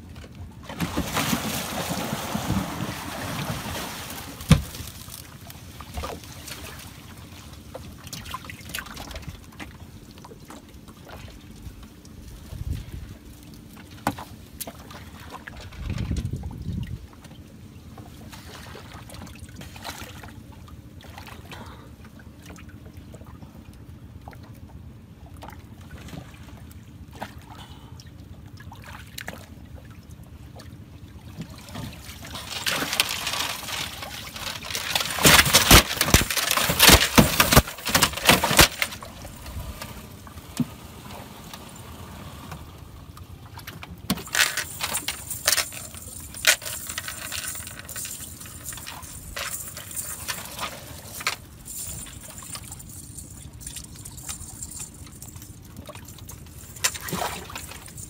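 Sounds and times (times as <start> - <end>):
water splashing off a net: 0.7 - 7.0, 31.5 - 39.6, 55.8 - 58.0.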